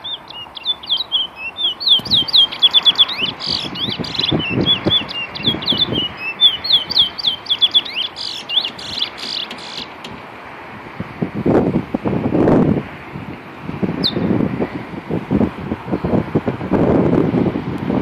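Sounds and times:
songbird warbling song: 0:00.0 - 0:10.1, 0:14.0 - 0:14.4.

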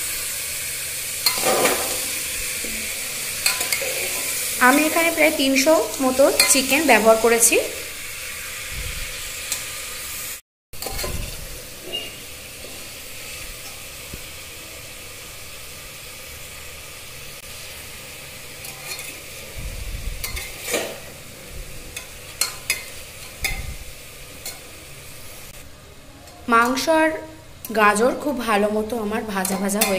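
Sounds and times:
food sizzling in a pot: 0:00.0 - 0:29.9
metal spatula scraping pot: 0:01.2 - 0:05.0, 0:10.8 - 0:12.3, 0:20.2 - 0:21.1.

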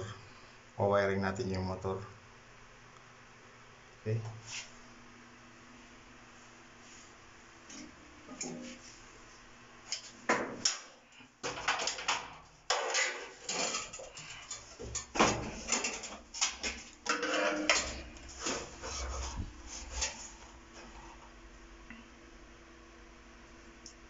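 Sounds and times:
knocks and scrapes of handling metal: 0:07.7 - 0:09.0, 0:09.9 - 0:21.2.

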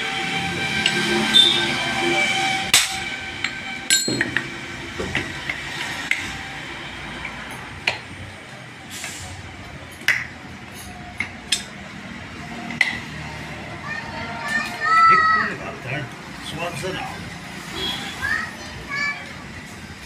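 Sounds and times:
hammer striking metal: 0:00.6 - 0:01.8, 0:02.6 - 0:06.4.

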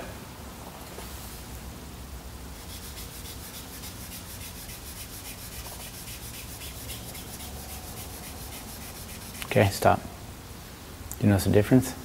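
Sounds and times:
sandpaper wet-sanding: 0:02.6 - 0:09.5.

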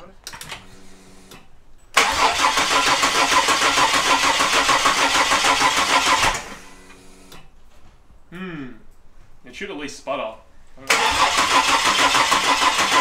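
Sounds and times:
engine cranking on starter: 0:01.9 - 0:07.4, 0:10.9 - 0:13.0.

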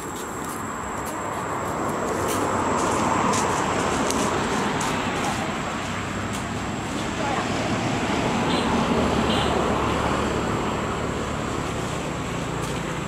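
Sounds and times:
vehicle passing on road: 0:00.0 - 0:13.0.

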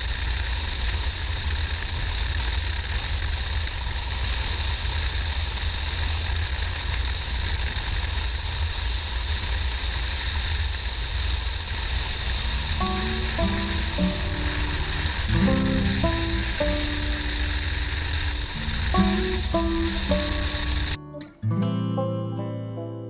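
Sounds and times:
wind rush over microphone: 0:00.0 - 0:15.5
motorcycle rumble: 0:00.0 - 0:21.0
music: 0:12.3 - 0:23.0.

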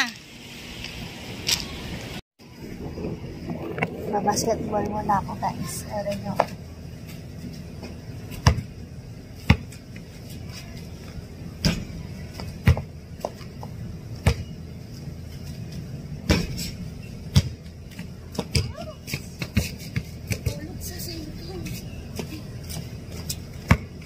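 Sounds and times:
basketball thudding: 0:08.3 - 0:08.7, 0:11.6 - 0:12.9, 0:16.2 - 0:16.7, 0:23.6 - 0:24.0.

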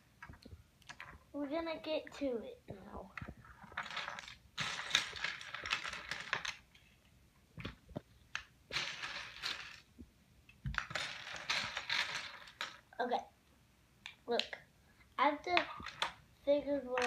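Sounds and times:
plastic bricks clattering: 0:03.0 - 0:06.8, 0:07.6 - 0:09.9, 0:10.6 - 0:12.8, 0:15.4 - 0:16.2.

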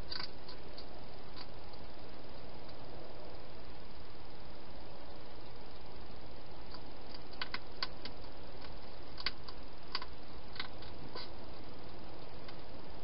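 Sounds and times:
hedgehog eating clicks: 0:00.0 - 0:01.8, 0:06.6 - 0:12.7
steady hiss: 0:00.0 - 0:13.0.

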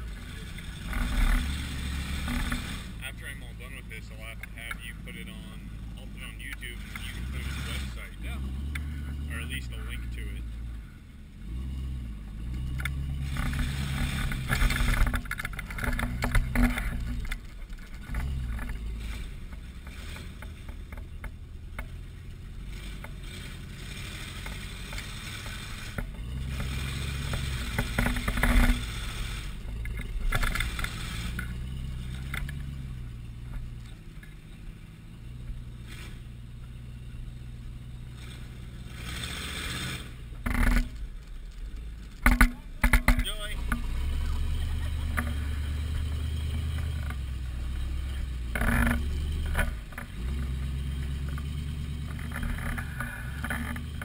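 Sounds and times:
off-road engine revving: 0:00.0 - 0:54.0
tyres grinding on loose rock: 0:12.8 - 0:21.3, 0:38.8 - 0:54.0.

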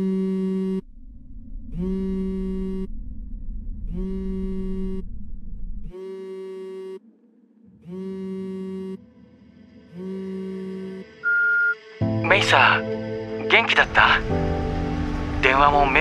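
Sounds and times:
phone vibrating: 0:00.0 - 0:00.9, 0:01.7 - 0:03.0, 0:03.8 - 0:07.0, 0:07.7 - 0:09.1, 0:09.8 - 0:11.8.

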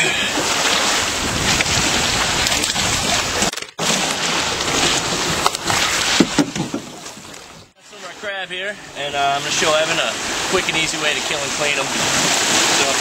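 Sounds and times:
waves sloshing against rocks: 0:00.0 - 0:13.0
wind buffeting microphone: 0:00.8 - 0:03.5.

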